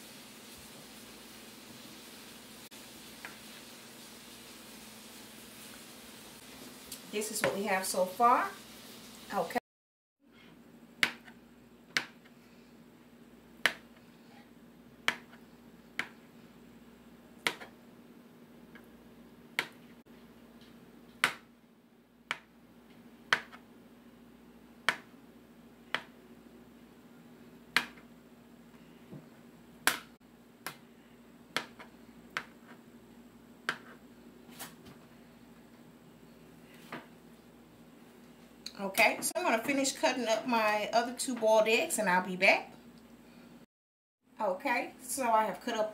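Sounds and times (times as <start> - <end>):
knife chopping on plastic board: 11.0 - 12.3, 13.6 - 14.0, 15.0 - 15.4, 16.0 - 16.2, 17.4 - 17.8, 21.2 - 21.5, 23.3 - 23.6, 24.8 - 25.2, 27.7 - 28.0, 31.5 - 32.8, 33.6 - 34.0.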